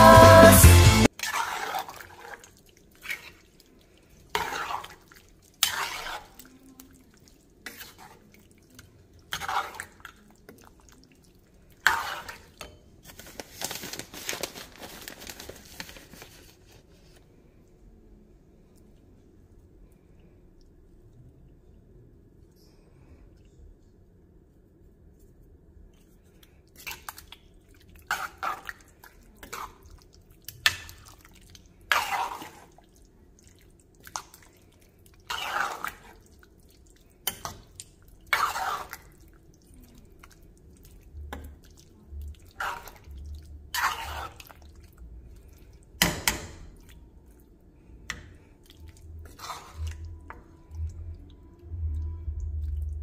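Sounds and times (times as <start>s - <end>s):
spoon stirring stew in metal pot: 1.1s - 13.2s, 26.8s - 47.3s, 48.0s - 52.0s.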